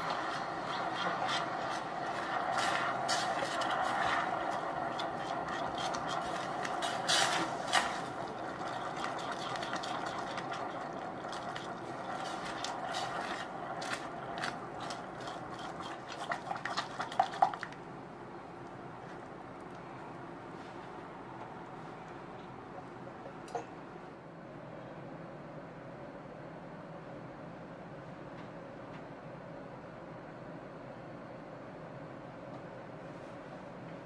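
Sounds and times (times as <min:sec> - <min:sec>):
spatula scraping saucepan: 0:00.0 - 0:08.2
bubbling syrup hiss: 0:00.0 - 0:17.8.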